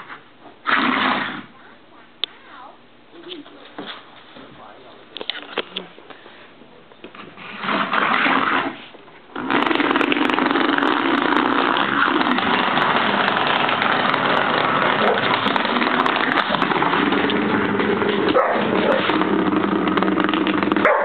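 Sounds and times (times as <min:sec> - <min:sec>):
vibrating massager buzzing on wood: 0:07.3 - 0:21.0.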